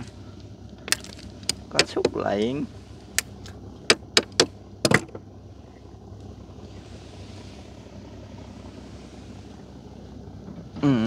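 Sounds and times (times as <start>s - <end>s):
steady low hum: 0.0s - 11.0s
sharp knocks on boat: 3.9s - 5.3s.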